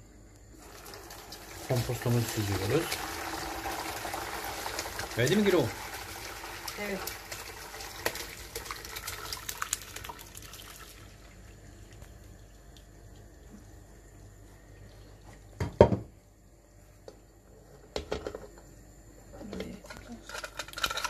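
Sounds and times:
liquid splashing through strainer: 0.6 - 12.8.

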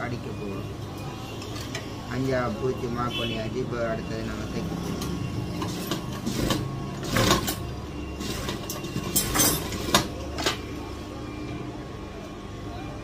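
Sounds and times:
sewing machine motor humming: 5.5 - 9.0
sewing machine stitching: 5.6 - 7.6.

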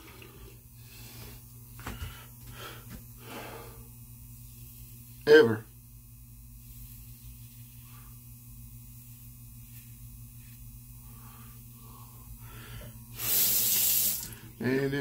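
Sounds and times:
steady electrical hum: 0.0 - 15.0
sink faucet running: 13.2 - 14.5.

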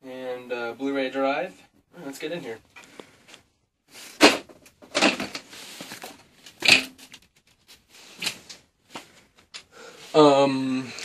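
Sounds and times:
rustling handling noises: 2.1 - 10.2.

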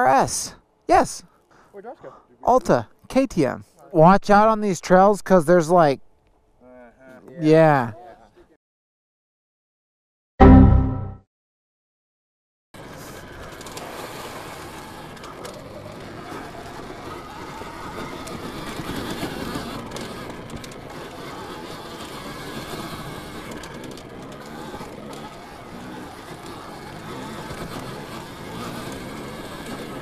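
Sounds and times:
electric dirt bike drive chain whining: 12.8 - 30.0
tyre noise on dirt: 12.8 - 30.0.

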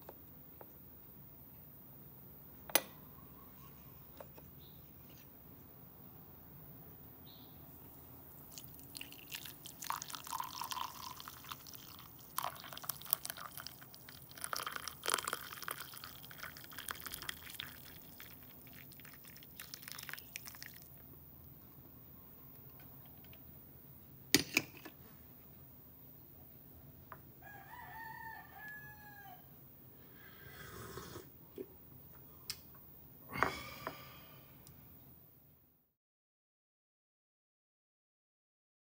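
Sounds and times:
coffee pouring into a mug: 8.5 - 21.0.

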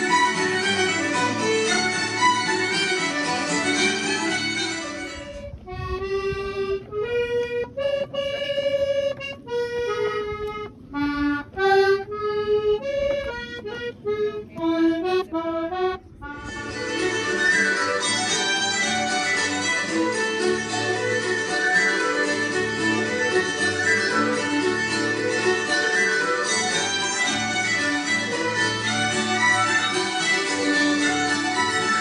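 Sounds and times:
button accordion playing: 0.0 - 32.0
instrumental background music: 0.0 - 32.0
low background rumble: 4.8 - 17.4.

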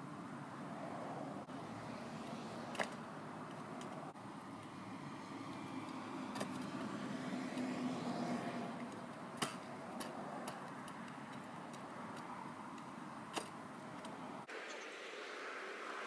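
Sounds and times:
scooter rolling on asphalt: 0.0 - 14.8
scooter wheels clacking: 2.7 - 4.8, 5.5 - 7.0, 8.7 - 14.3.

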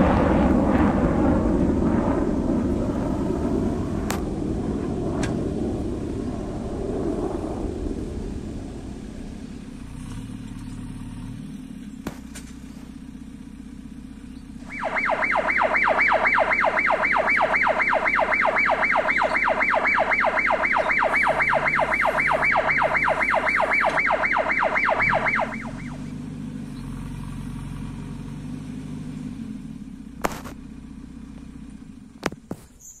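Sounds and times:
diesel engine running: 0.0 - 32.7
rapidly pulsing electronic alarm: 14.6 - 26.1.

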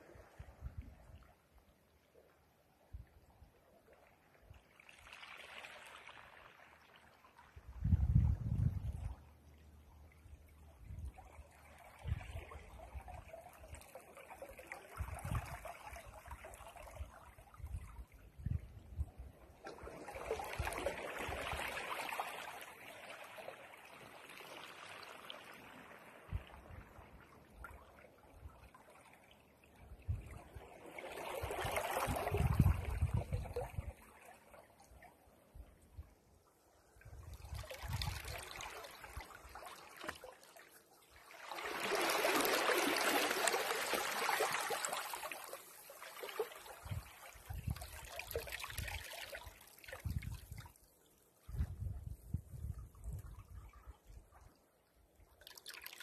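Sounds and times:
waves washing over pebbles: 41.4 - 46.6.

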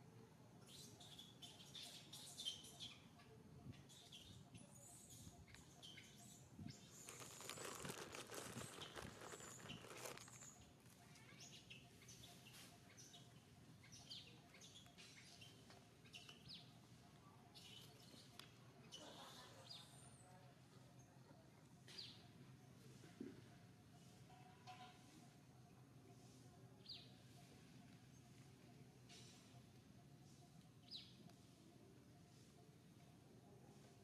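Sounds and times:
small animal chirps and squeaks: 0.7 - 16.7
rustling noise: 6.9 - 10.5.

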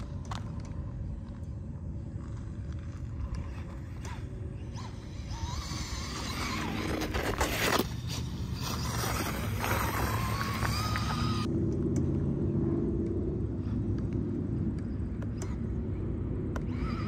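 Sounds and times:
steady low rumble: 0.0 - 17.0
electric motor whining: 2.8 - 11.5, 16.5 - 17.0.

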